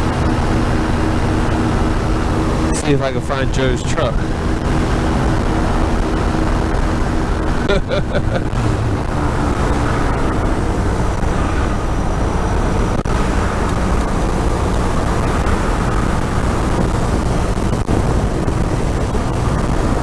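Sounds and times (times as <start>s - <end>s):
engine and propeller drone: 0.0s - 20.0s.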